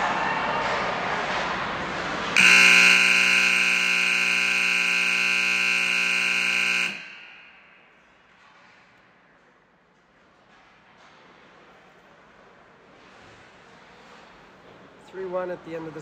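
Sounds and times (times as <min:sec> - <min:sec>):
arena buzzer tone: 0:02.4 - 0:08.0.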